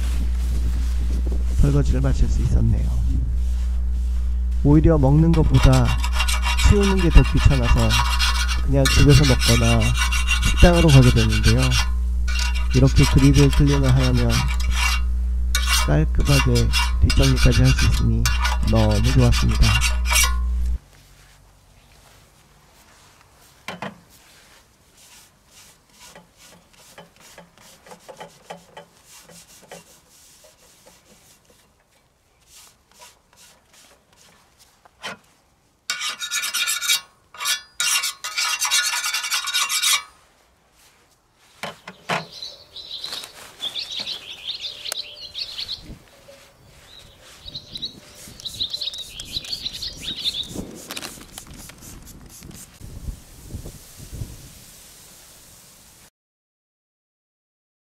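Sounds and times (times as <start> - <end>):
paper towel rubbing steel plate: 0.0 - 20.8, 24.2 - 31.8, 32.4 - 35.3, 35.9 - 40.3, 46.4 - 52.8
high squeaks: 5.3 - 20.8, 41.8 - 51.2.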